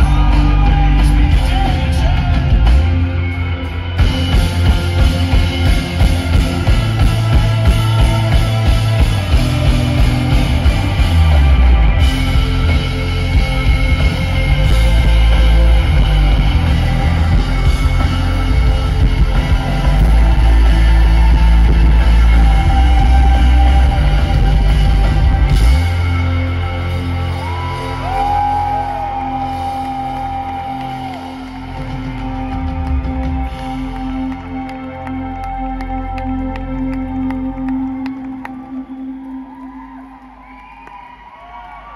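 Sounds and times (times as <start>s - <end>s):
live rock band playing: 0.0s - 39.7s.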